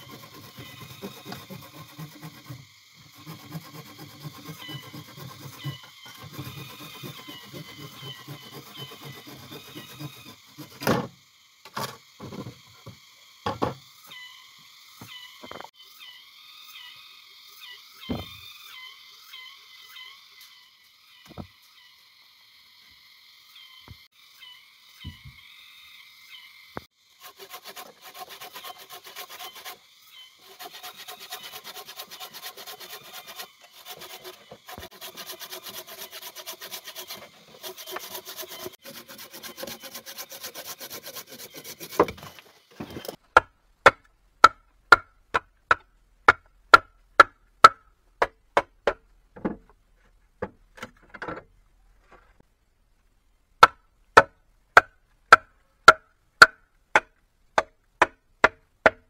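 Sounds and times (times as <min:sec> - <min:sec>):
hand saw cutting wood: 0:00.0 - 0:12.9, 0:27.1 - 0:45.1
chopping strikes on wood: 0:53.6 - 0:59.0.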